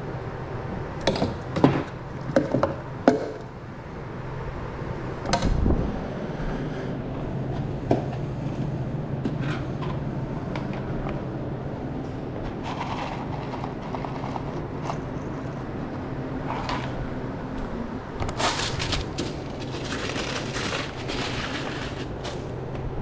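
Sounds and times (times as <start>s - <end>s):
steady low hum: 0.0s - 23.0s
clattering and crinkling handling: 12.4s - 17.0s, 18.2s - 22.8s.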